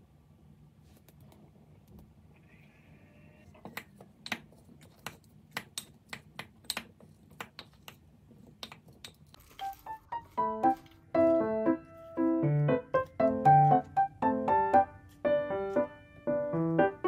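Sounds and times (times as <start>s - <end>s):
piano music: 9.5s - 17.0s.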